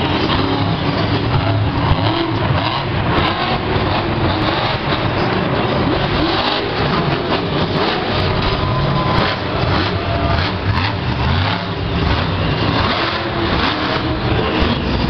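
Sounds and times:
monster truck engine revving: 0.0s - 15.0s.

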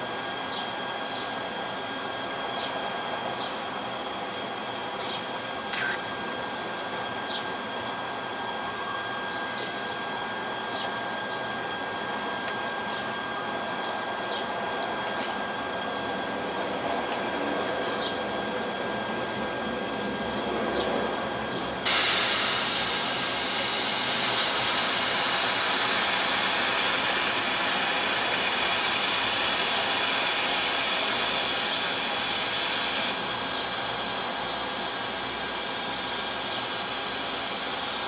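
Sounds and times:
loud hiss: 21.8s - 38.0s.

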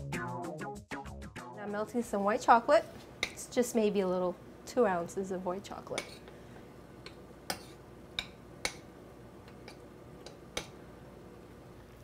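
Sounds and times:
metal spoon clicking on saucepan: 9.5s - 10.8s.

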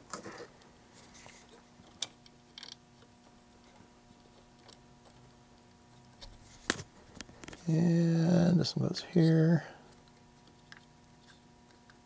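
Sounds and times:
faint electrical hum: 0.0s - 12.0s
small clicks and taps soldering: 1.8s - 7.6s.

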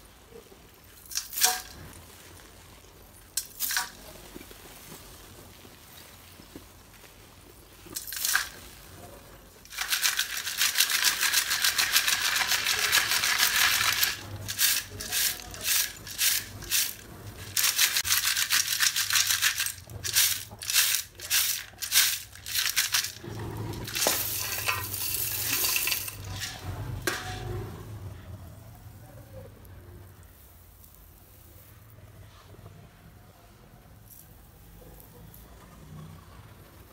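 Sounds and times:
clay pieces rattling in metal sieve: 1.0s - 1.9s, 3.4s - 4.0s, 7.9s - 8.8s, 9.6s - 27.5s.

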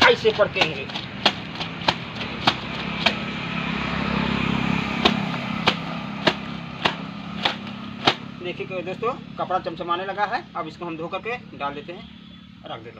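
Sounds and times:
wet clothes slapped on concrete: 0.0s - 3.3s, 5.0s - 8.3s.

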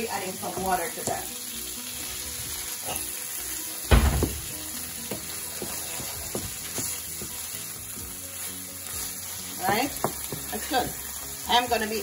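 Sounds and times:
sauce sizzling in a skillet: 0.0s - 12.0s
wooden spatula scraping and tapping: 9.6s - 10.8s.

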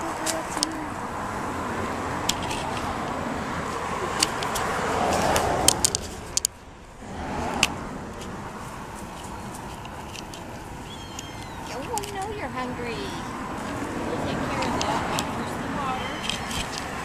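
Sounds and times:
outdoor background noise: 0.0s - 17.0s
camera handling clicks and rustles: 4.2s - 6.5s, 9.2s - 10.5s.

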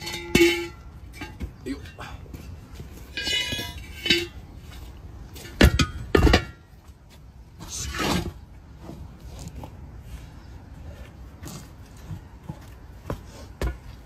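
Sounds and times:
loud ringing metal clanks: 0.0s - 1.4s, 3.1s - 4.5s.

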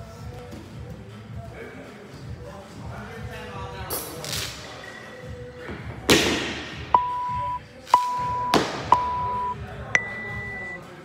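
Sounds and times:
timer beeps: 7.0s - 10.8s.

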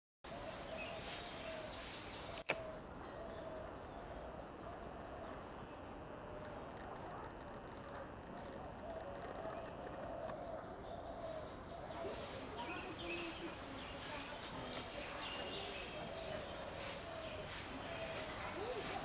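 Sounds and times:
sharp click: 2.4s - 2.7s.

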